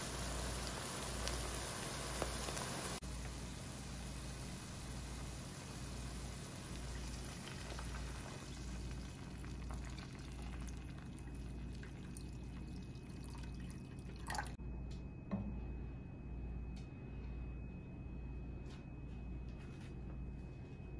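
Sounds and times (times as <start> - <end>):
water pouring into a pan: 5.2 - 14.6.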